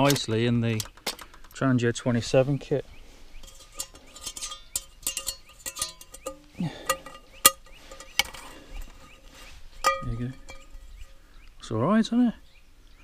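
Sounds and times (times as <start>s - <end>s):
metal pan clicks and clinks: 3.4s - 8.4s, 9.8s - 10.8s.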